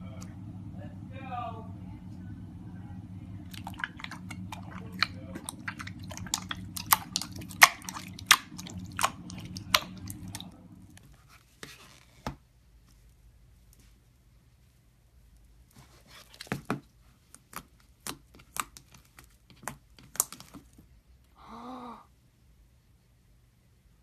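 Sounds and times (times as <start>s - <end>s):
steady low hum: 0.0s - 11.3s.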